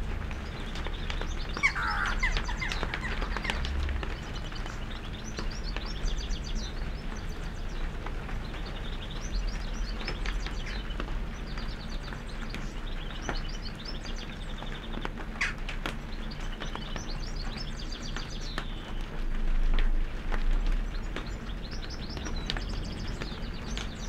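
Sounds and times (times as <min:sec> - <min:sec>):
steady low rumble: 0:00.0 - 0:15.0
small birds chirping: 0:00.0 - 0:24.0
lower bird call: 0:01.3 - 0:06.3.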